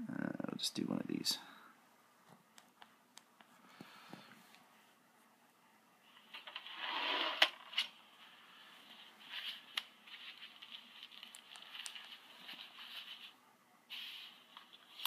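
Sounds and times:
thin tinny speaker audio: 0.0s - 15.0s.

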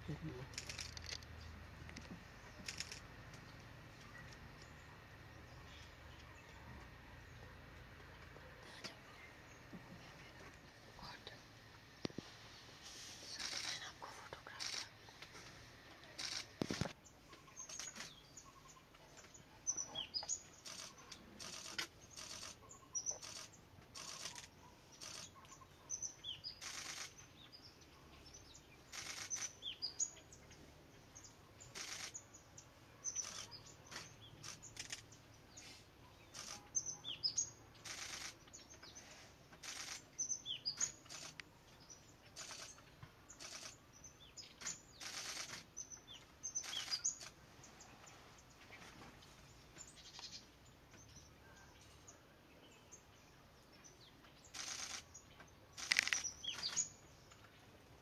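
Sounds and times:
high bird chirps: 44.3s - 47.3s
woodpecker tapping on bark: 55.8s - 56.8s.

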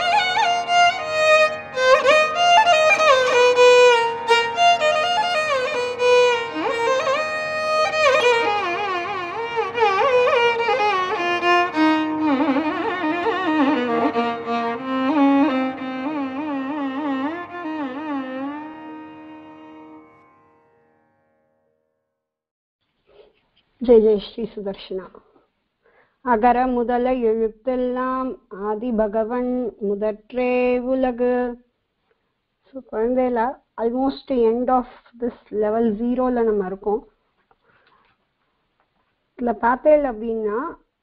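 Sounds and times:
instrumental melody with sliding notes: 0.0s - 20.9s.

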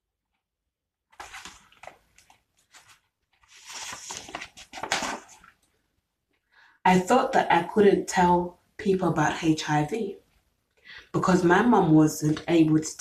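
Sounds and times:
paper pages rustling: 1.1s - 5.8s.

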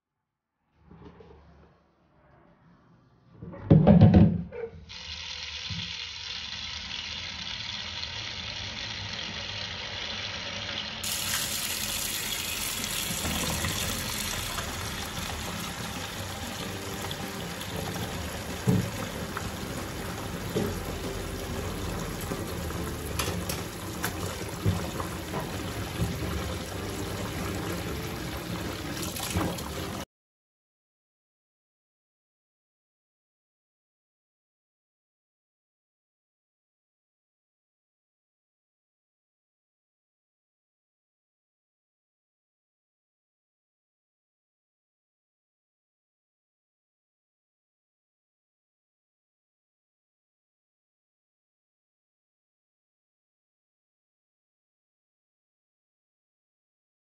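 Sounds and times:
knocks against the sink: 3.7s - 4.5s
tap running into sink: 11.0s - 30.0s.

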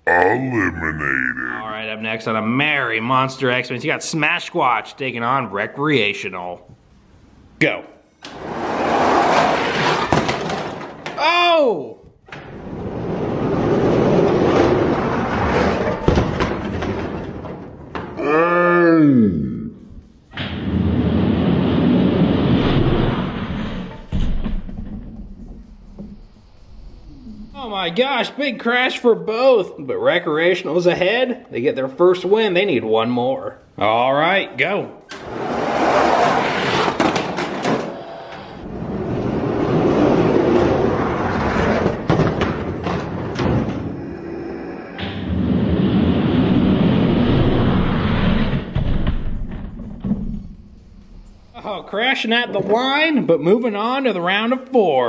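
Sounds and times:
toy trucks crashing: 8.3s - 11.4s, 12.8s - 18.2s, 35.2s - 38.2s, 38.8s - 44.0s.

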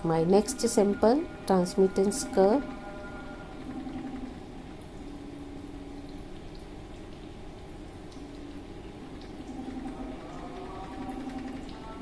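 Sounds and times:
spectrophotometer humming: 0.0s - 12.0s.

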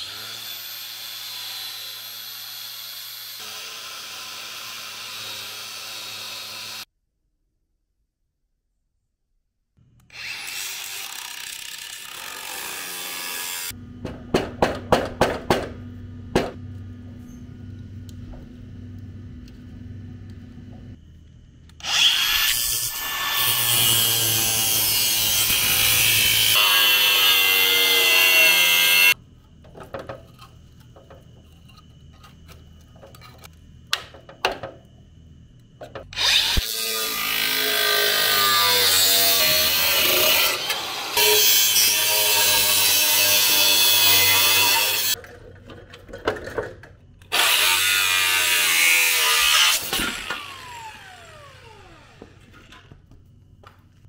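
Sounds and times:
angle grinder cutting steel: 0.0s - 6.9s, 10.1s - 13.8s, 21.8s - 29.2s, 36.2s - 45.2s, 47.3s - 52.8s.

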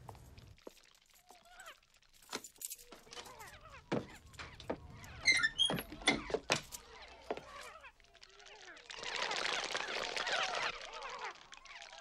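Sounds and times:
short high squeaks: 5.2s - 6.3s.

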